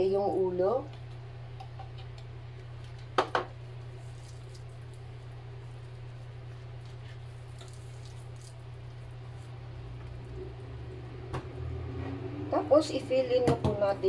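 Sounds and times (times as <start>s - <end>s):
steady low hum: 0.0s - 14.0s
hands squishing marinade on fish: 3.9s - 9.6s.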